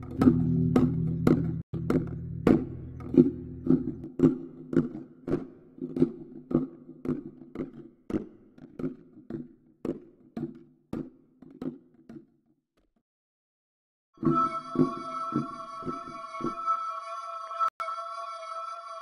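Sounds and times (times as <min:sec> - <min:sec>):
low droning tone: 0:00.0 - 0:04.0.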